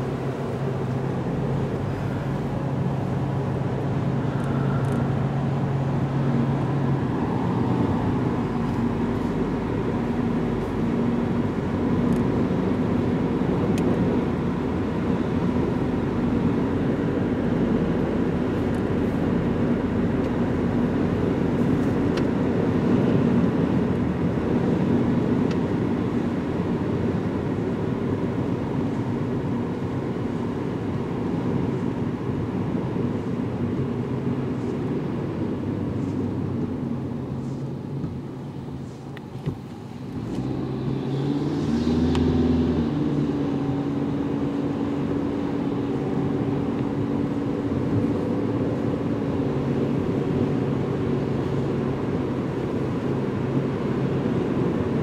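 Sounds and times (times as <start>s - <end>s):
steady droning tone: 0.0s - 11.6s
car tyre and engine noise: 0.0s - 55.0s.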